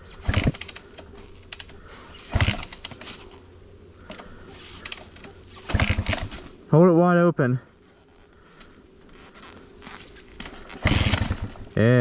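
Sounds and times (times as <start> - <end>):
dirt bike engine turning over: 0.0 - 3.5, 4.1 - 6.6, 9.0 - 12.0.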